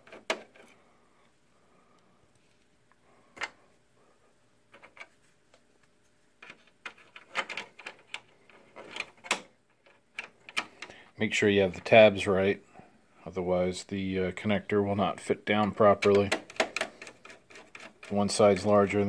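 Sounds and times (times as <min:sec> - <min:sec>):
small parts being handled: 0:04.6 - 0:11.0.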